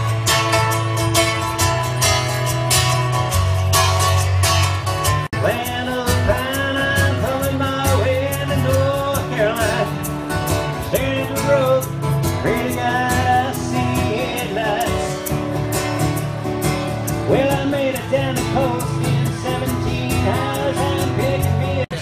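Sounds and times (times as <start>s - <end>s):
strummed acoustic guitar: 0.0s - 22.0s
person singing: 5.4s - 10.1s, 10.8s - 15.2s, 17.3s - 22.0s.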